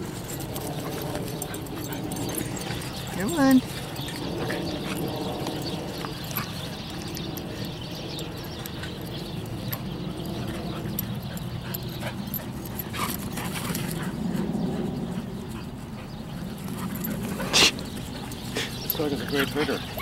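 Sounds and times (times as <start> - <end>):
dogs vocalising while playing: 0.0 - 20.0.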